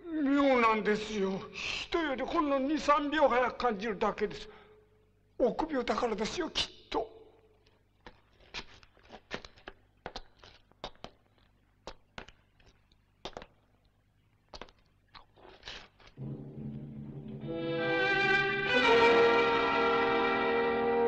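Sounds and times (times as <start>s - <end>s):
orchestral music with strings: 16.2s - 21.0s.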